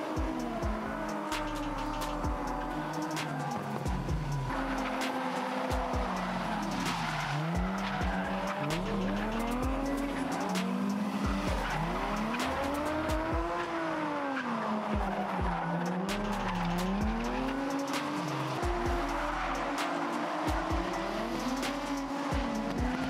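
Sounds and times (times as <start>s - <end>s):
car engines revving: 0.0s - 23.0s
tyres squealing: 0.8s - 13.4s.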